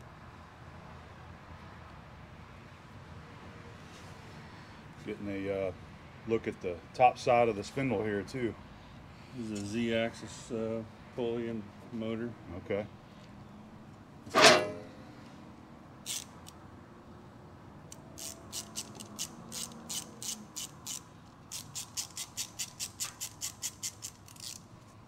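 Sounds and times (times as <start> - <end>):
ratchet clicking: 16.0 - 16.6, 17.9 - 24.7.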